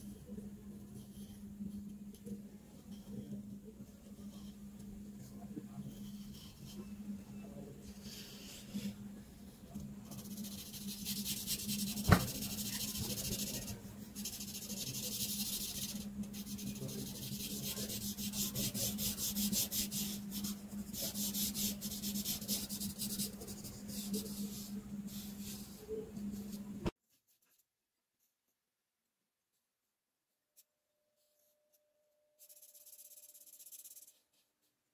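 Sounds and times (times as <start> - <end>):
marker scratching on paper: 10.0 - 26.6, 32.4 - 34.4.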